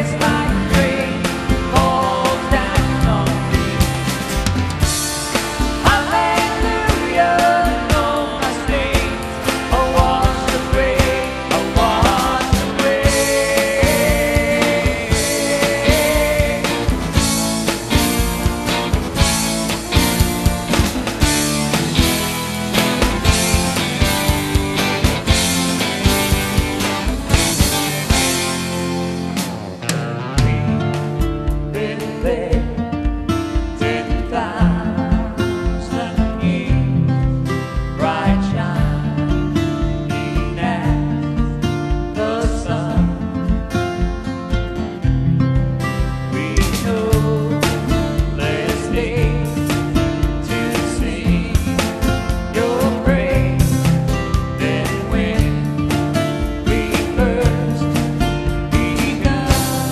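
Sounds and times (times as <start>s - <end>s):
person singing: 0.0s - 4.0s, 5.8s - 18.2s, 30.2s - 32.8s, 33.5s - 37.2s, 37.8s - 39.4s, 40.2s - 43.3s, 46.3s - 59.9s
drum kit beat: 0.0s - 59.9s
electric guitar: 0.0s - 59.9s
live band music: 0.0s - 59.9s.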